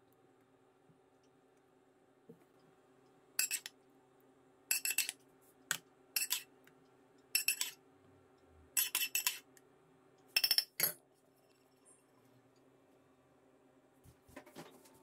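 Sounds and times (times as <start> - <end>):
utensil scraping a frying pan: 8.8 - 9.4.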